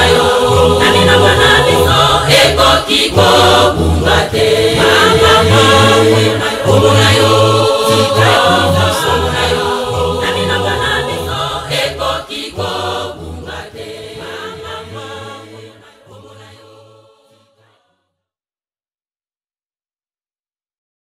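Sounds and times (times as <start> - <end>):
low bass: 0.0 - 12.0
choir singing: 0.0 - 18.1.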